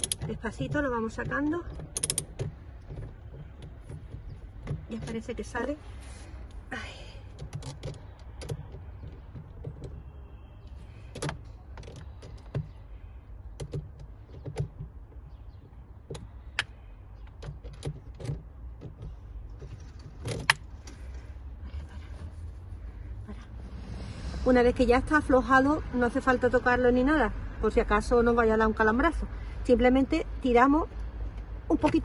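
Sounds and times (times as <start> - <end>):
ratchet wrench clicking: 0.0 - 0.2, 1.8 - 2.5.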